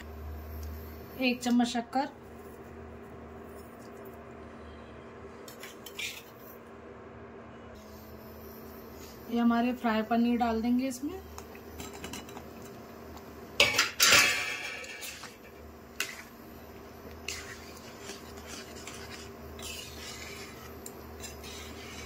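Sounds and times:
steel plate clattering against pan: 13.6 - 15.2
spatula scraping metal pan: 14.6 - 16.4, 17.2 - 22.0.

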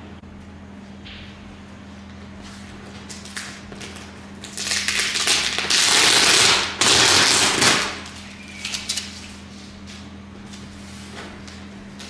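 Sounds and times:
packing tape ripping off box: 3.3 - 9.3.

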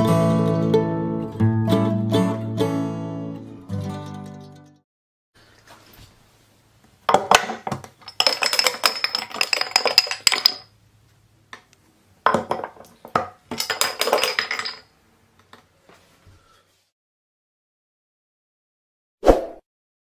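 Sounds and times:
metal cap clattering down pegs: 7.3 - 10.7, 13.5 - 14.9.

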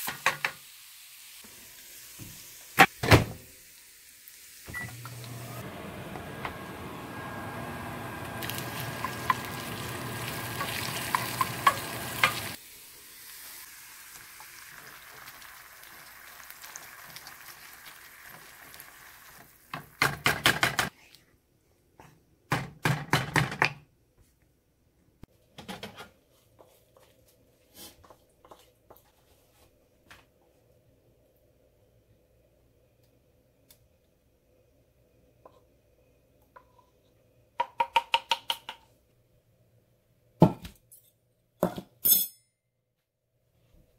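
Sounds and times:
food sizzling in frying pan: 0.0 - 2.9, 3.5 - 5.6, 7.4 - 20.0.

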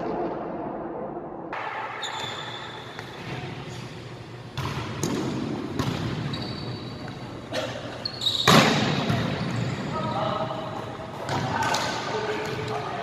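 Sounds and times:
sneaker squeaks on hardwood: 2.0 - 3.2, 6.2 - 7.2, 8.0 - 9.8
volleyball smacks: 8.5 - 9.3.

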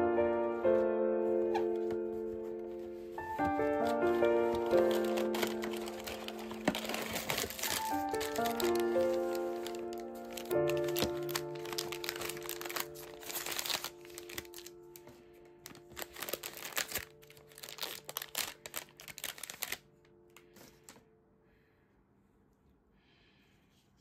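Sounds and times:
background music: 0.0 - 21.0
plastic wrapper crinkling and tearing: 3.2 - 21.0.

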